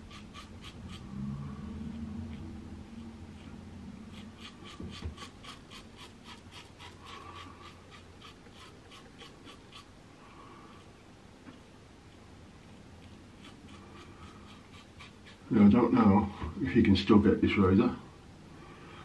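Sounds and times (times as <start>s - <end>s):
razor scraping stubble: 0.0s - 1.2s, 1.9s - 10.0s, 11.5s - 15.8s.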